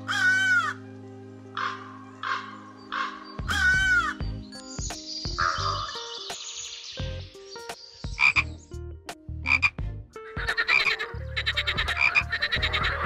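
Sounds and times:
frog croaking: 8.2s - 8.5s, 9.4s - 9.8s, 10.4s - 13.0s.

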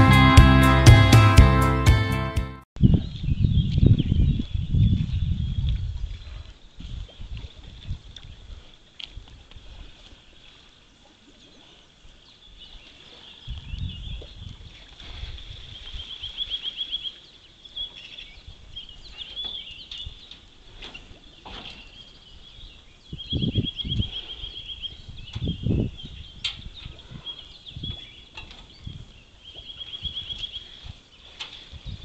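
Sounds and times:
birds singing: 15.9s - 32.0s.

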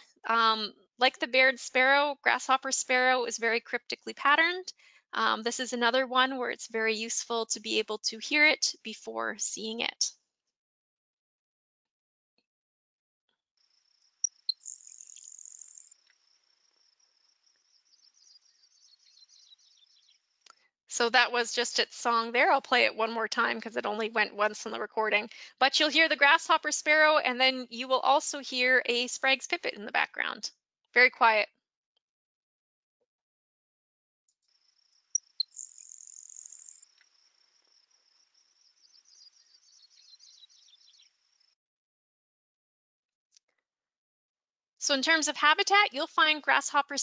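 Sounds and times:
sparrow ticks and buzzing song: 13.6s - 20.8s, 34.4s - 41.6s
sparrow song with high buzz: 14.3s - 16.0s.

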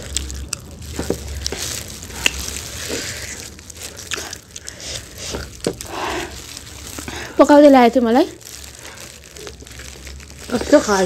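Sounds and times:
biting and chewing chicken wings: 0.0s - 7.3s
soft crunches: 0.0s - 7.4s.

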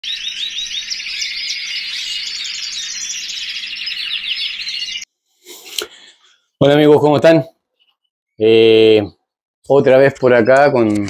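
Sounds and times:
small birds chirping and singing: 0.0s - 5.1s.

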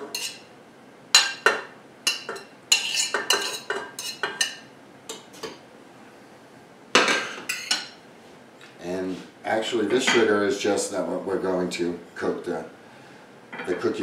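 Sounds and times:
metal utensil clinking on plate: 13.5s - 14.0s.

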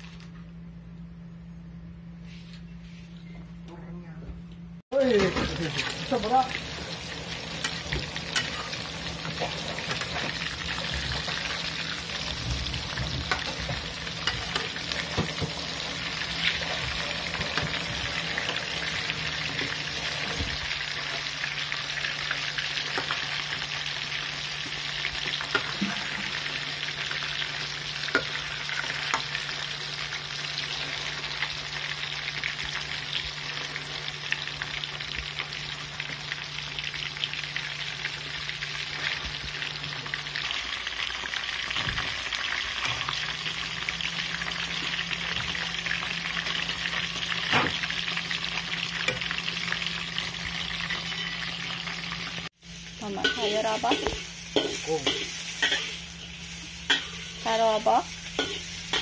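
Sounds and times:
meat deep-frying in oil: 5.0s - 59.0s
metal spatula scraping: 53.3s - 57.4s, 58.4s - 59.0s.

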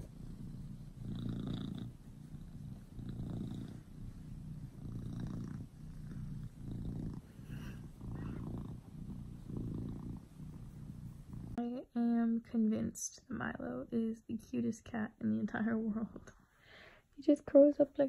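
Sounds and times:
cat purring: 0.0s - 13.8s.

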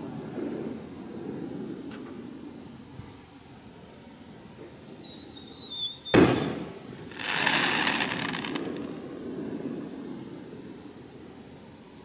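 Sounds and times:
firework whistling: 4.5s - 10.8s
firework bang: 6.1s - 9.3s
firework crackling: 6.1s - 11.0s.

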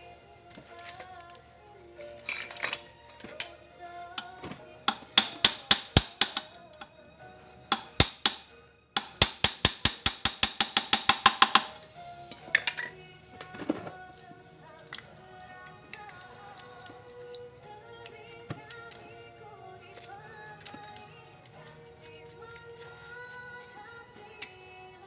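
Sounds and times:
background music: 0.0s - 25.0s
hammer striking metal: 4.9s - 6.6s, 7.7s - 12.9s.

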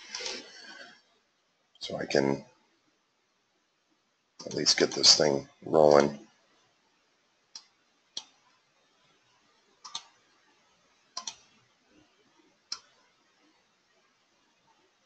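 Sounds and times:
computer mouse clicking: 7.5s - 8.4s, 9.8s - 10.2s, 11.2s - 11.5s, 12.7s - 13.0s.

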